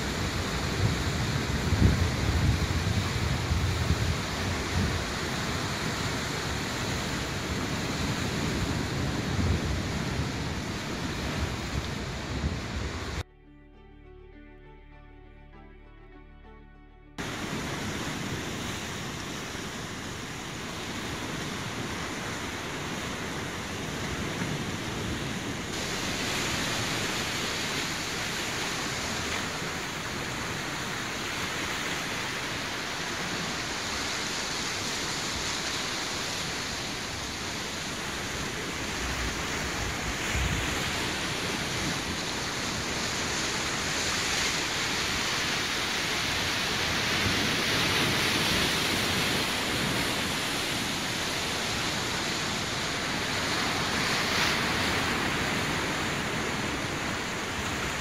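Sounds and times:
rushing water: 0:00.0 - 0:13.2, 0:17.2 - 0:58.0
wind buffeting microphone: 0:00.0 - 0:13.2
wind: 0:00.0 - 0:13.3, 0:17.2 - 0:58.0.

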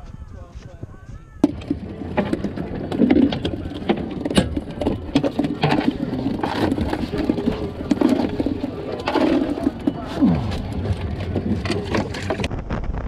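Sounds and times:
fish flopping on deck: 0:01.4 - 0:12.5.

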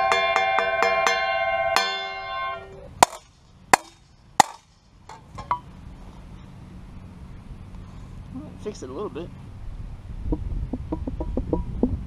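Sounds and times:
hammer ringing on steel blade: 0:00.0 - 0:03.2
sharp metal knocks: 0:00.0 - 0:05.7.

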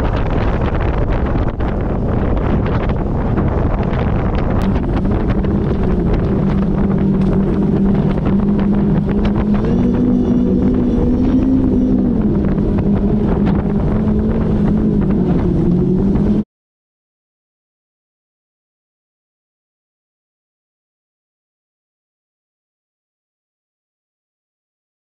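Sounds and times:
water noise from hull: 0:00.0 - 0:16.4
wind over microphone: 0:00.0 - 0:16.5
boat engines running: 0:00.1 - 0:16.4.

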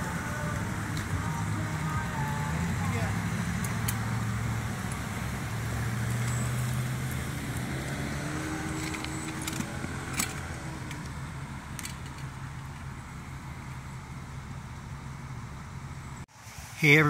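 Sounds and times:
low engine hum: 0:00.0 - 0:16.5.

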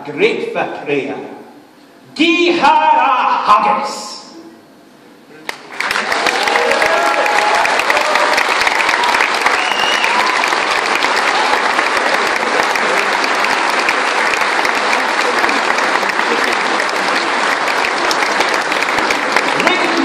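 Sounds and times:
audience applauding: 0:05.5 - 0:20.0.

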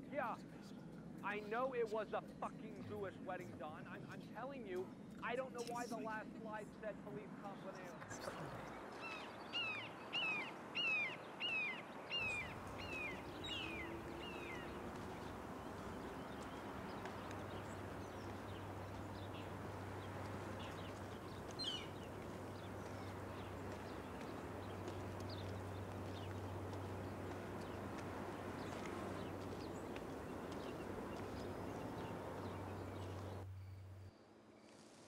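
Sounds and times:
steady outdoor hiss: 0:00.0 - 0:35.0
bird short falling calls: 0:09.0 - 0:19.6.

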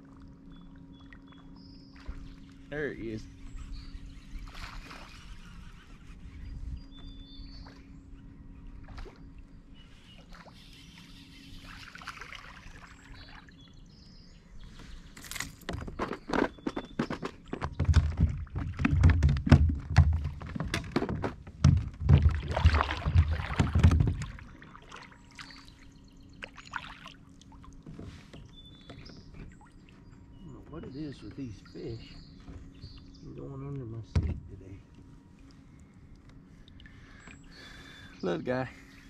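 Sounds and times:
water sloshing: 0:07.6 - 0:13.6, 0:14.6 - 0:33.1
knocks against plastic kayak hull: 0:15.7 - 0:24.4.

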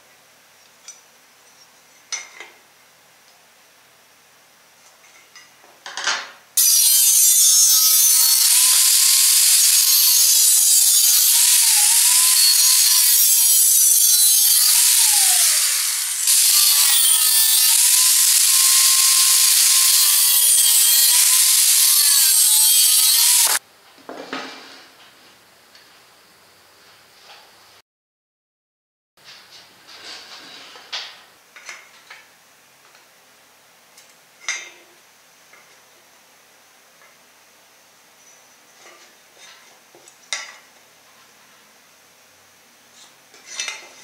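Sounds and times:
angle grinder cutting steel: 0:06.6 - 0:23.6.

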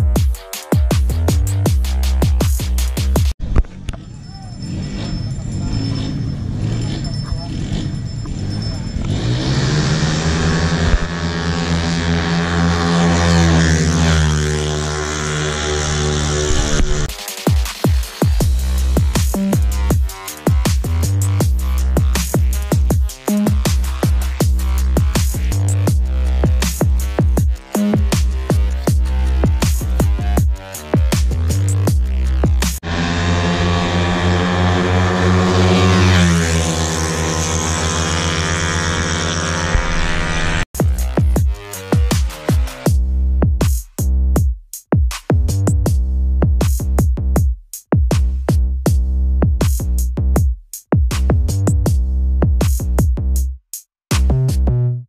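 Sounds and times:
scooter engines at high revs: 0:03.6 - 0:43.0.

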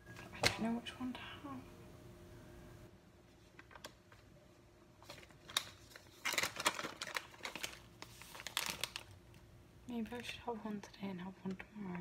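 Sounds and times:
plastic wrappers crinkling: 0:05.0 - 0:09.4.

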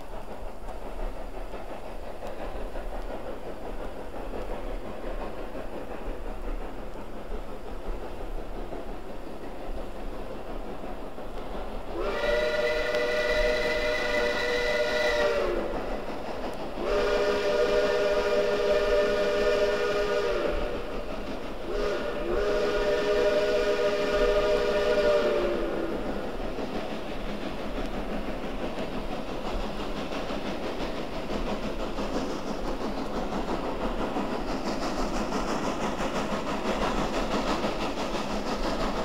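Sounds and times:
distant steam whistle blasts: 0:11.9 - 0:16.2, 0:16.8 - 0:26.3.

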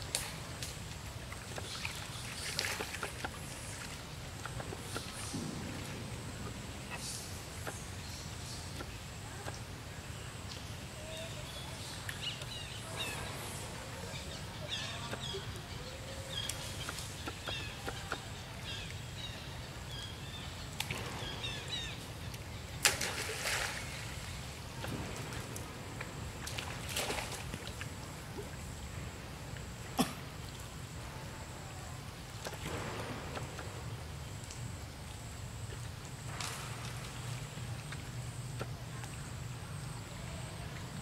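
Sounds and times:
water splash: 0:22.8 - 0:28.6.

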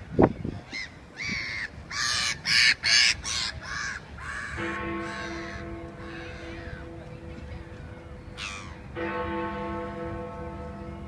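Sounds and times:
gulls yelping: 0:00.7 - 0:09.0
clock-tower bell ringing: 0:04.5 - 0:11.0.

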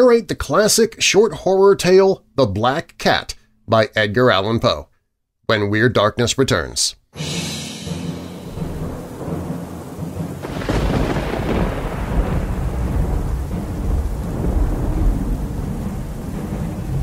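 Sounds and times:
thunder crack: 0:07.2 - 0:17.0
thunder rumble: 0:07.6 - 0:17.0.

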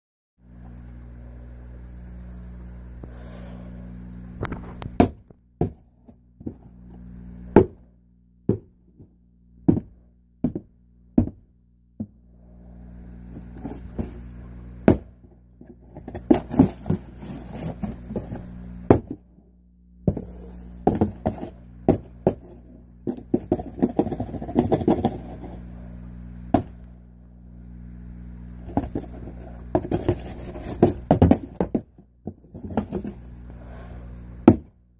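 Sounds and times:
steady low hum: 0:00.4 - 0:34.9
scraping and rustling on cardboard: 0:13.3 - 0:14.3, 0:15.6 - 0:19.2, 0:20.1 - 0:25.7, 0:28.6 - 0:34.0.

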